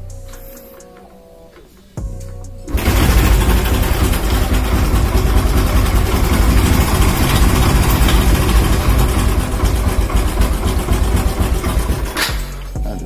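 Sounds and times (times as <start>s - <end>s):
motorcycle engine idling: 2.7s - 12.7s.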